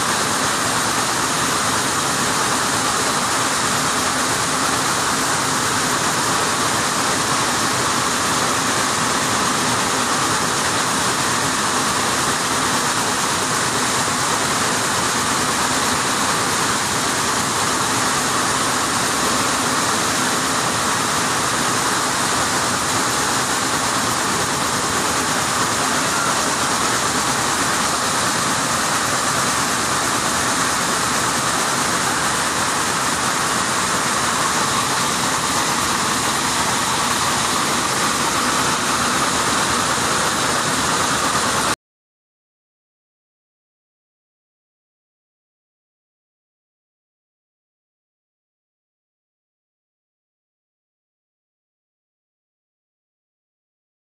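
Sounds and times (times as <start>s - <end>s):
weaving looms running: 0.0s - 41.8s.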